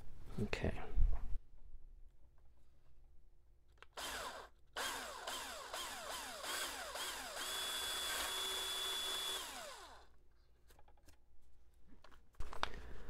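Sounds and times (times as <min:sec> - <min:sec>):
power drill boring through wood: 0:04.0 - 0:10.1.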